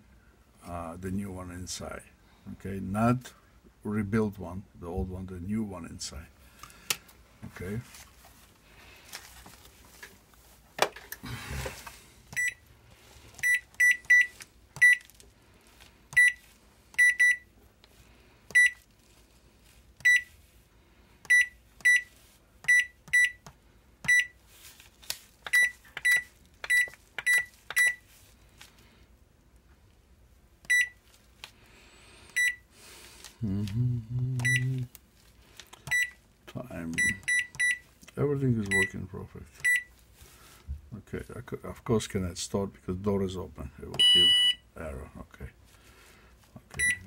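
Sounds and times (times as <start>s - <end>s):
handling rustle: 7.4s - 12.1s, 24.4s - 28.9s
short high beeps: 44.0s - 44.6s.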